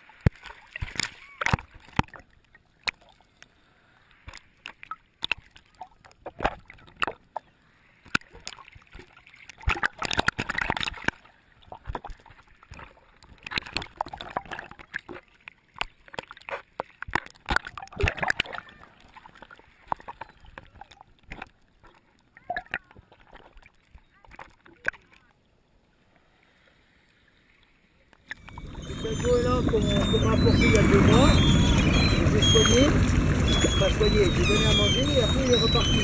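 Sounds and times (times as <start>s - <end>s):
water sloshing and gurgling: 0.0s - 36.0s
rushing splashes: 28.3s - 36.0s.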